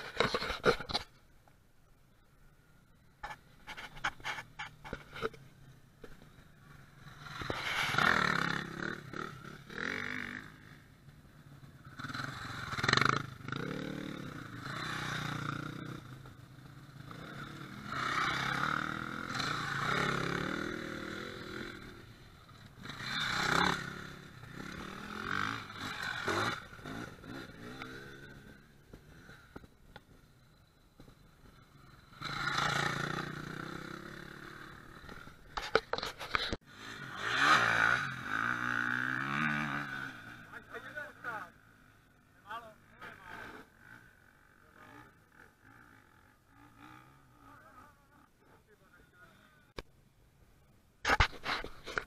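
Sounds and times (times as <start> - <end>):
dirt bike engines revving past: 2.2 - 49.8.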